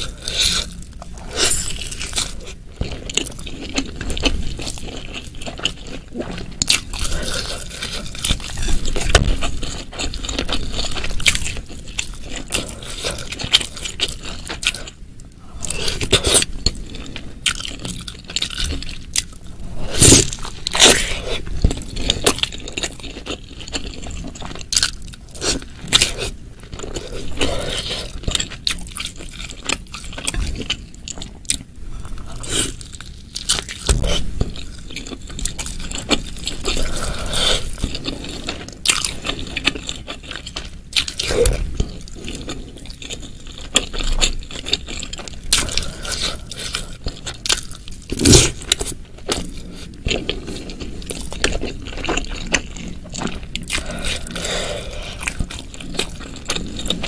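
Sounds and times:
wet chewing and biting: 15.6s - 57.0s.

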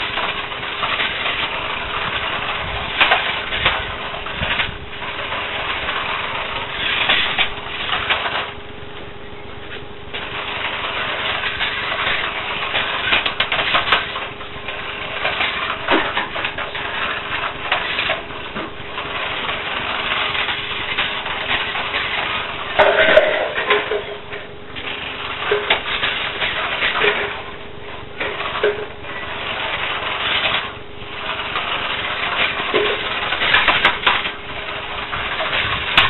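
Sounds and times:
toy car motor whirring: 28.4s - 36.0s.

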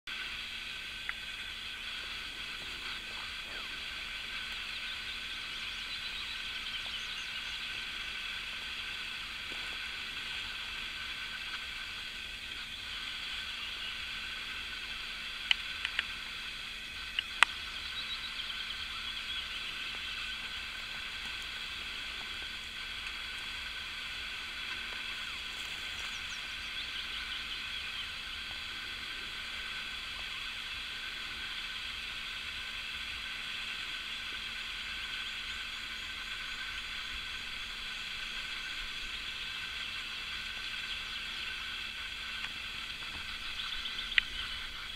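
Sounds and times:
chorus of distant animal calls: 0.2s - 44.9s
sharp clicks: 15.4s - 16.2s.

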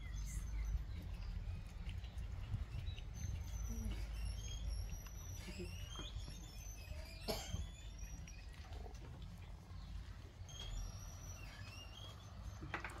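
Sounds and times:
high-pitched animal chirps: 2.4s - 8.8s, 10.5s - 12.7s.

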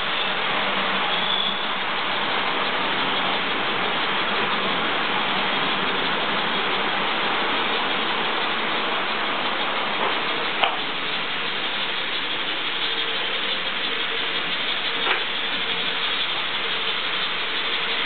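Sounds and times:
model trains rolling on track: 0.0s - 18.0s.

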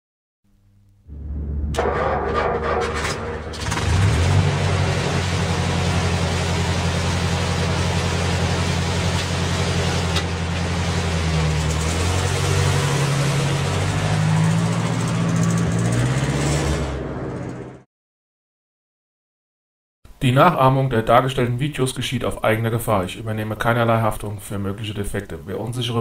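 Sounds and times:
vehicle engine running: 1.1s - 17.8s.

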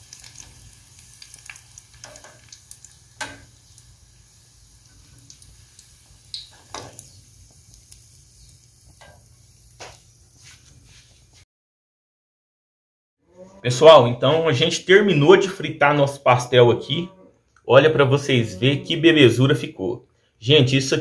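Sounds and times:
pastries sizzling in lard: 0.0s - 11.4s.

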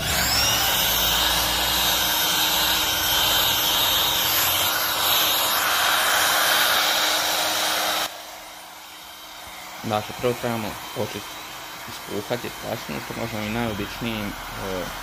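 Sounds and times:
electric air pump running: 0.0s - 15.0s.

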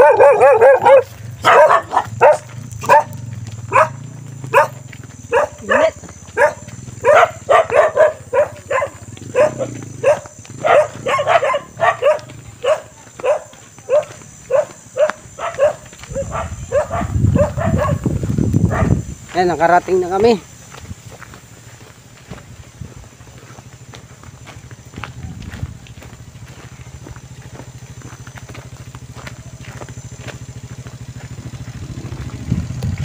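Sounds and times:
dog barking: 0.0s - 19.0s.

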